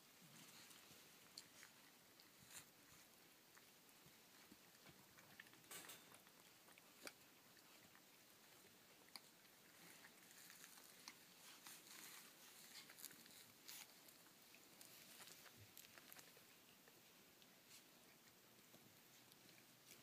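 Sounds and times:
faint rustles: 0:08.5 - 0:20.0.

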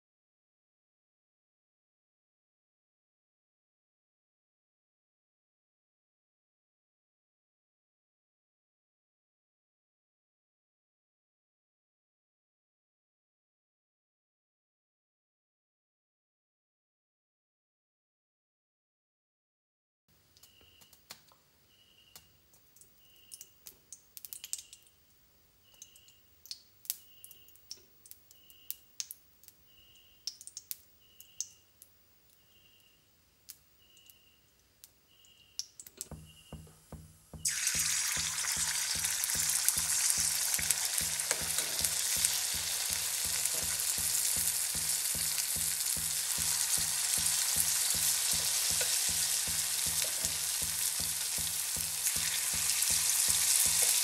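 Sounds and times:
batter sizzling in hot oil: 0:37.4 - 0:54.0.

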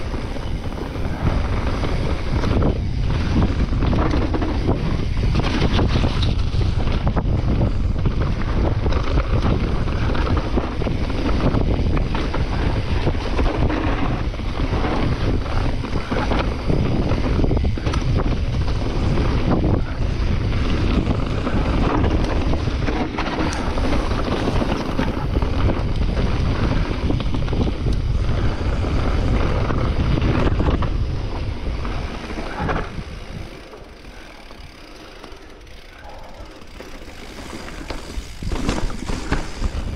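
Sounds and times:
bike knocks and rattles: 0:00.0 - 0:39.9
wind buffeting microphone: 0:00.0 - 0:39.9.

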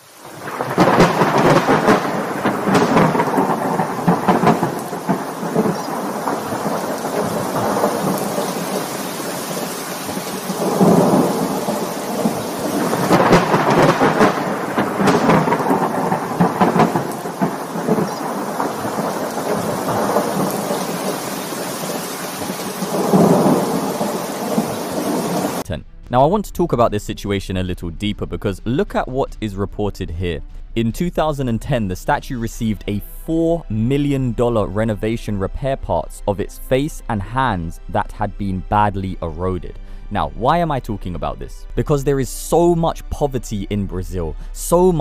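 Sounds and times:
heavy rain: 0:00.0 - 0:25.7
thunder rolling: 0:00.2 - 0:25.7.

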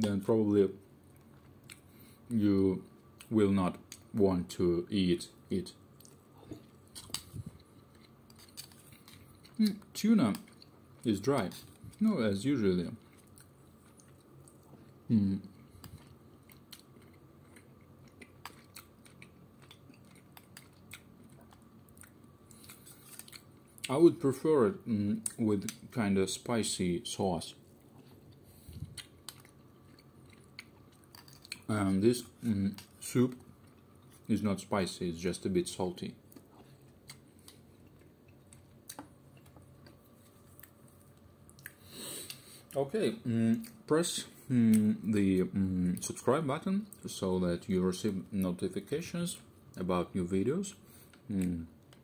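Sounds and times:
low room hum: 0:00.0 - 0:52.0
person chewing: 0:01.1 - 0:02.2, 0:05.9 - 0:11.0, 0:13.0 - 0:23.9, 0:27.7 - 0:34.3, 0:36.3 - 0:42.8.

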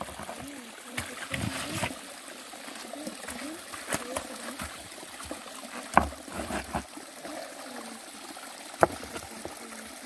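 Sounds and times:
water trickling into pond: 0:00.0 - 0:10.0
stones knocking: 0:03.7 - 0:06.8, 0:08.8 - 0:09.3.

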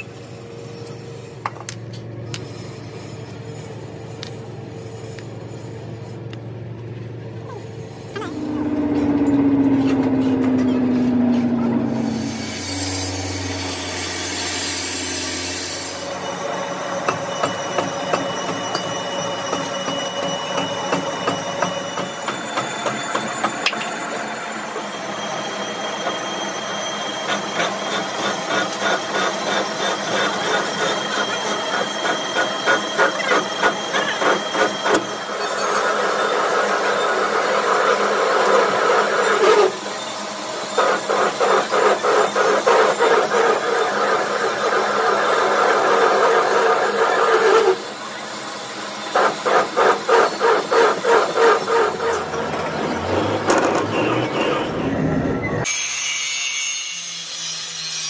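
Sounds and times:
metal lathe running: 0:07.2 - 0:55.8
lathe tool cutting steel: 0:07.8 - 0:58.0.

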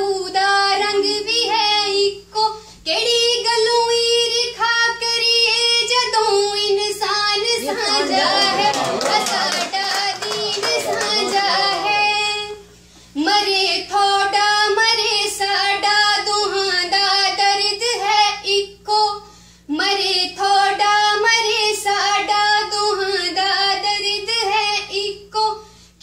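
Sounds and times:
woman singing: 0:13.2 - 0:25.6.

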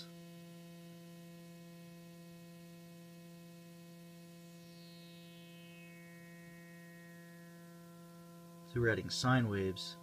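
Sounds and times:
low buzzy synthesizer tone: 0:00.0 - 0:10.0
whistling overtone gliding down: 0:04.0 - 0:08.8.

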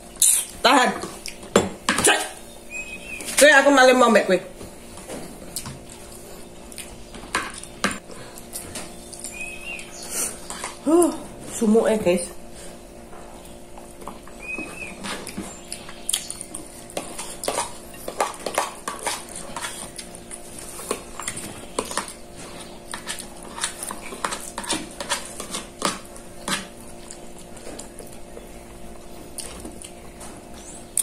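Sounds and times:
faint steady hum: 0:00.0 - 0:31.0
chewing and lip-smacking: 0:05.5 - 0:09.9, 0:13.4 - 0:28.3, 0:29.3 - 0:30.0
spoon scraping plastic plate: 0:10.3 - 0:10.8, 0:16.9 - 0:26.7.

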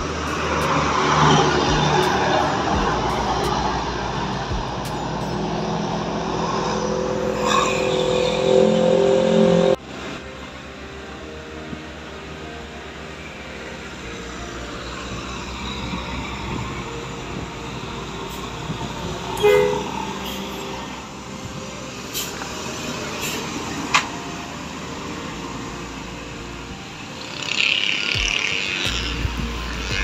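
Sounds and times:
bus diesel engine drone: 0:00.0 - 0:30.0
short horn toot: 0:19.4 - 0:19.9.

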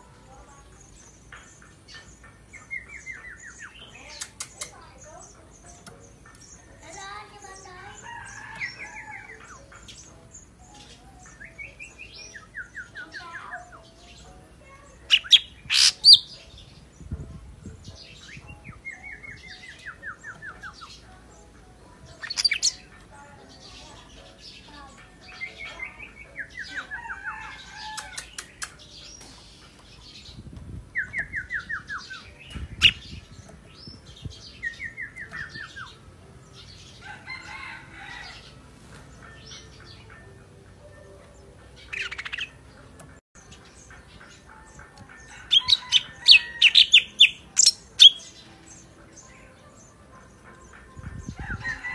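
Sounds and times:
loud sharp snaps: 0:28.0 - 0:28.9.

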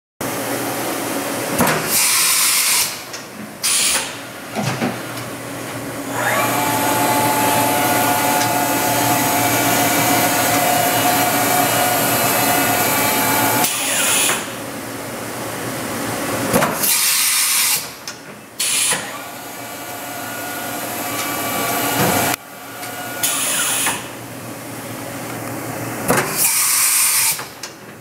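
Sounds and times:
machine motor whine: 0:06.0 - 0:14.5, 0:18.6 - 0:24.1.

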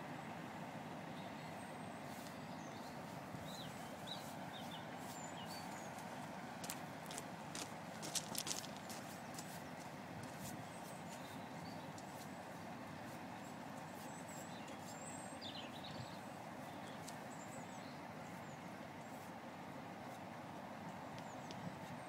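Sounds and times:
birds chirping: 0:00.0 - 0:22.0
footsteps crunching on ballast: 0:03.6 - 0:12.4.

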